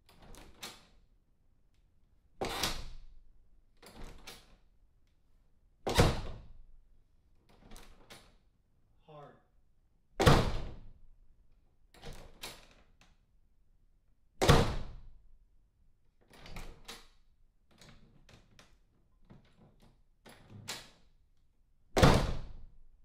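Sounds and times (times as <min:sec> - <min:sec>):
door thudding shut: 0:05.8 - 0:06.4, 0:10.2 - 0:10.8, 0:14.4 - 0:15.0, 0:22.0 - 0:22.6
latch and lock clicking: 0:12.0 - 0:13.1.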